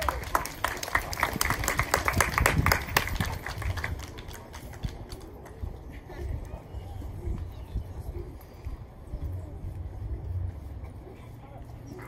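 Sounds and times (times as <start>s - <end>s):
hand claps: 0.0s - 5.6s.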